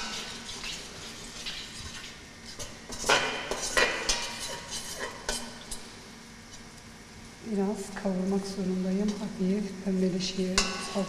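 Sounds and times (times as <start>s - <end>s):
metal ladle scraping a pot: 0.0s - 5.5s
paste frying in oil: 0.0s - 6.1s, 7.4s - 11.0s.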